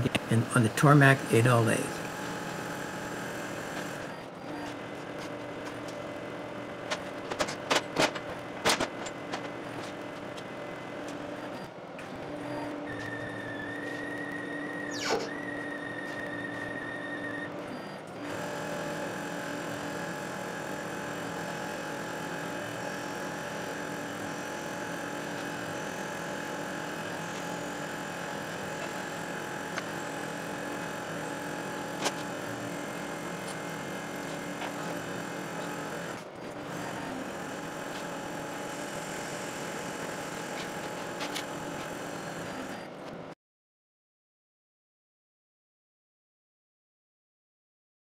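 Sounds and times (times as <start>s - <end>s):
lathe whirring: 2.0s - 7.2s, 12.4s - 42.9s.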